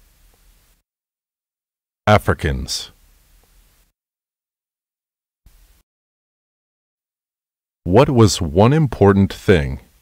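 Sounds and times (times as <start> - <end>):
faint hiss: 0.0 - 0.8, 2.1 - 3.9, 5.5 - 5.8.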